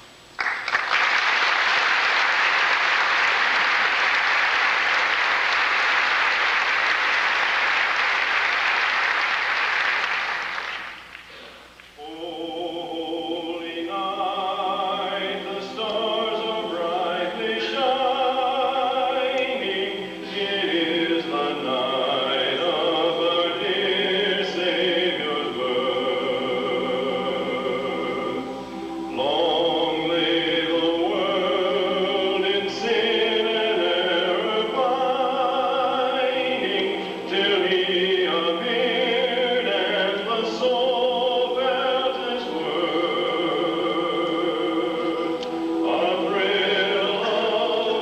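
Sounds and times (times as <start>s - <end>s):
audience applauding: 0.4s - 11.4s
men's chorus singing in harmony: 12.0s - 48.0s.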